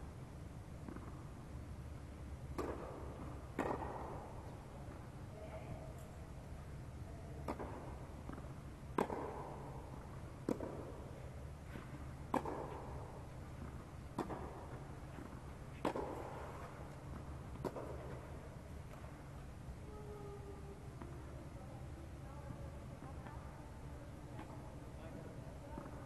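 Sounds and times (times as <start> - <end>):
steady low hum: 0.0 - 26.0
tennis ball hits echoing: 2.5 - 5.0, 7.4 - 19.1.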